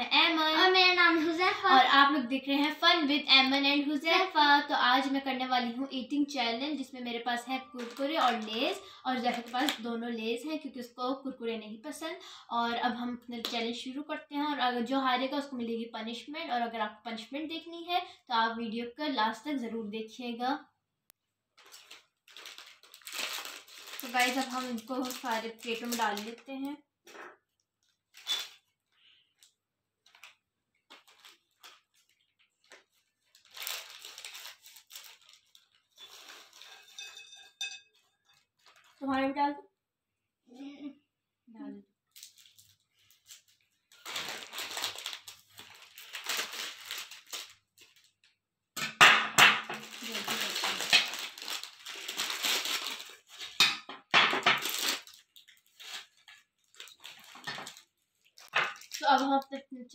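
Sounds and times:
plastic packets crinkling: 0:06.4 - 0:10.0, 0:21.6 - 0:26.8, 0:27.8 - 0:37.0, 0:38.0 - 0:39.1, 0:42.0 - 0:48.4, 0:49.6 - 0:59.7.

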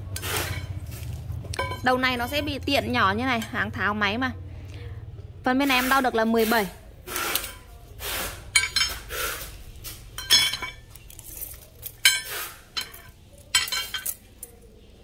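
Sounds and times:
steel shafts clinking: 0:01.5 - 0:03.7, 0:08.5 - 0:09.1, 0:10.1 - 0:14.7.

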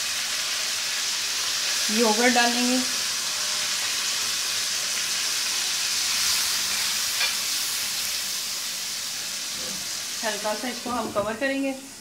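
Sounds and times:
chillies sizzling in hot oil: 0:00.0 - 0:12.0
spatula scraping pan: 0:06.2 - 0:07.6.

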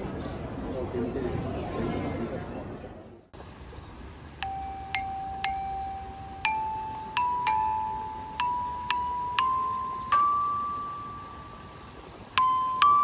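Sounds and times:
metallophone notes ringing: 0:04.4 - 0:13.0.

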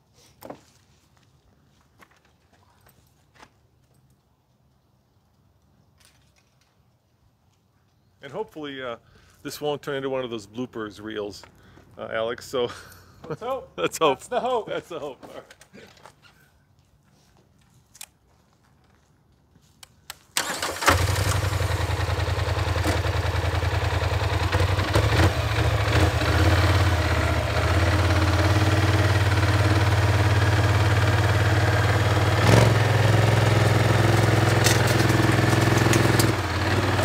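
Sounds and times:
atv engine starting and idling: 0:20.4 - 0:37.0.

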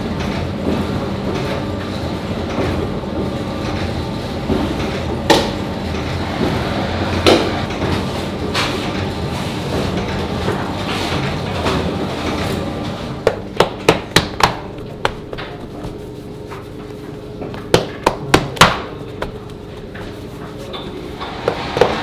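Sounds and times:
steady background noise: 0:00.0 - 0:22.0
bread dough slapping on stone: 0:13.2 - 0:20.2.

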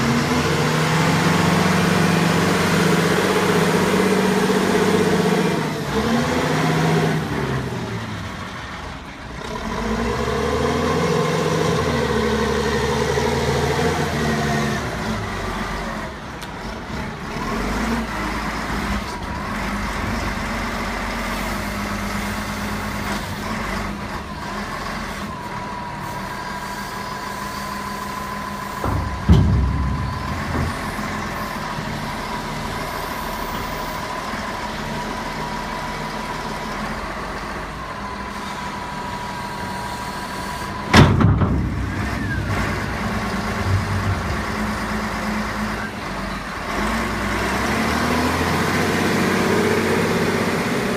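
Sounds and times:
wheel loader diesel engine: 0:00.0 - 0:50.9
heavy knock: 0:28.8 - 0:31.6, 0:40.9 - 0:45.2.

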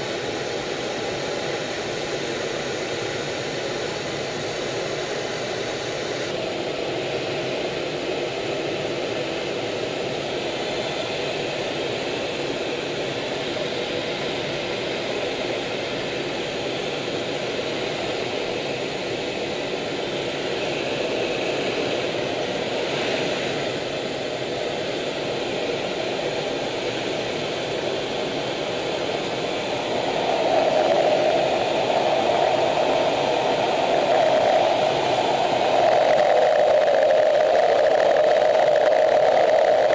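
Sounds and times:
jet cockpit airflow rushing: 0:26.4 - 0:39.9.

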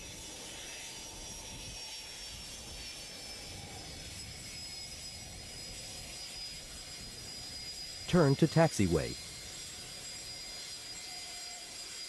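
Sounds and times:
jet engines running: 0:05.2 - 0:10.2
high thin whine: 0:08.1 - 0:09.2.

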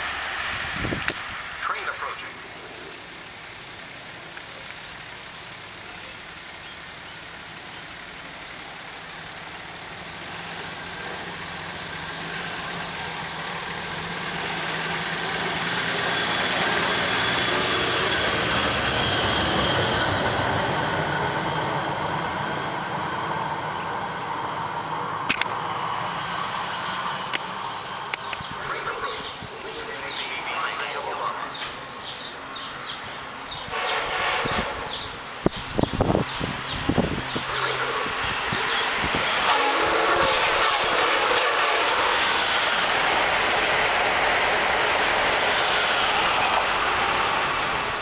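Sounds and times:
steel wheels ringing on rail: 0:15.2 - 0:23.6.

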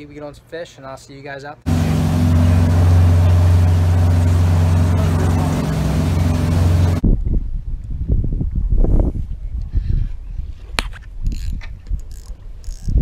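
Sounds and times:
boat engine drone: 0:01.7 - 0:07.0
wake and wind rushing: 0:01.7 - 0:07.1
low bumps and rushes: 0:01.7 - 0:07.2.

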